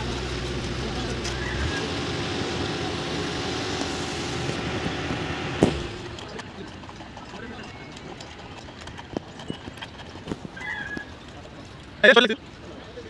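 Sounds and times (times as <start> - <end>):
deep low hum: 0.0 - 6.9
construction machinery running: 0.0 - 10.6
sharp knock: 5.5 - 6.2.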